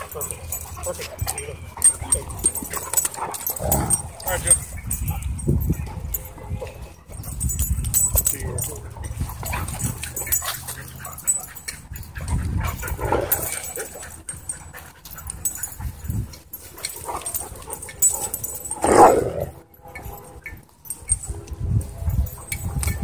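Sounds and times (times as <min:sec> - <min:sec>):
dogs growling and yipping: 0:00.0 - 0:06.2, 0:08.7 - 0:19.6.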